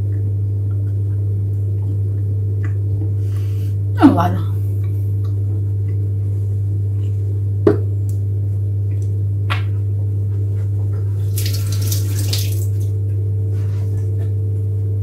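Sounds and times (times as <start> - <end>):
steady low hum: 0.0 - 15.0
tap running into sink: 11.3 - 12.9.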